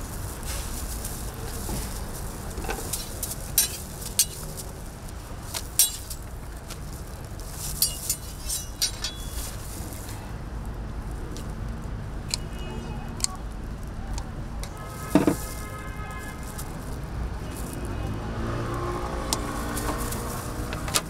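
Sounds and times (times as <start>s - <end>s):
street background hum: 0.0s - 21.0s
metal utensils clinking on pans: 2.6s - 4.6s, 5.7s - 6.2s, 7.7s - 9.5s.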